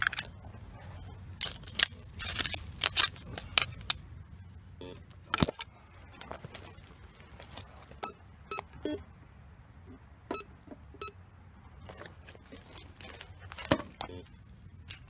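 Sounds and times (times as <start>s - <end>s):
footsteps crunching on stones and leaves: 0.0s - 4.0s, 5.4s - 8.0s, 11.8s - 14.2s
metal detector beeps: 4.8s - 5.6s, 8.0s - 9.0s, 10.3s - 11.2s.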